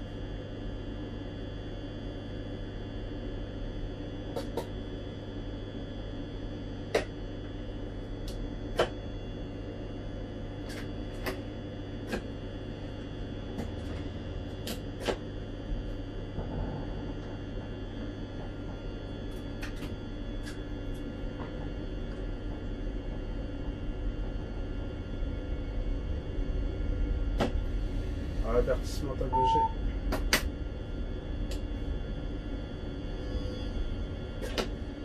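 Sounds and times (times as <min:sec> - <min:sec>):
train cab hum: 0:10.2 - 0:35.0.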